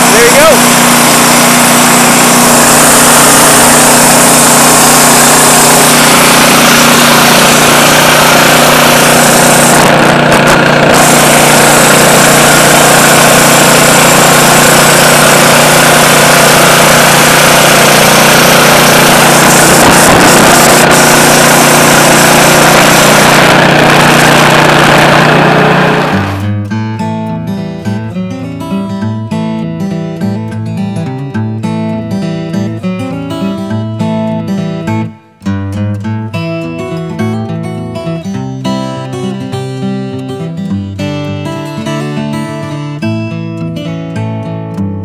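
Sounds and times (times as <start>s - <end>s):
band blade cutting log: 0.0s - 26.4s
sawmill engine running: 0.0s - 26.5s.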